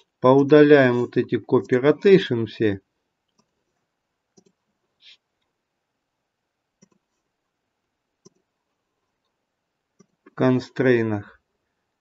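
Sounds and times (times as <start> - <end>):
computer mouse clicks: 3.3 - 3.6, 4.3 - 4.6, 6.8 - 7.2, 8.2 - 8.5, 10.0 - 10.4.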